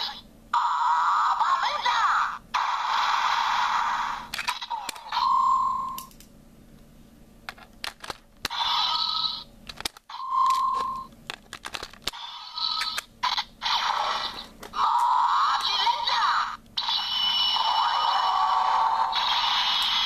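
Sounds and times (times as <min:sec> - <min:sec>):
toy speaker sound effects: 0:00.0 - 0:02.9, 0:03.8 - 0:05.9, 0:08.5 - 0:09.5, 0:12.1 - 0:20.0
toy electronic beeps: 0:04.5 - 0:06.1, 0:10.1 - 0:11.1
plastic clicks: 0:07.5 - 0:08.5, 0:09.6 - 0:12.2.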